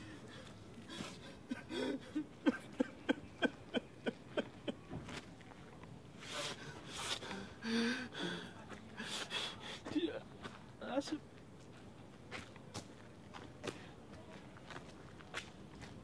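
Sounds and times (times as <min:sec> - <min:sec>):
footsteps on dirt path: 0:04.6 - 0:05.9, 0:11.4 - 0:16.0.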